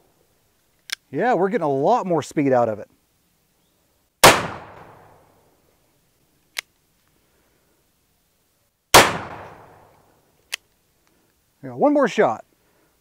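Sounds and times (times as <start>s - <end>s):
revolver gunshots: 4.2s - 5.2s, 8.9s - 9.9s.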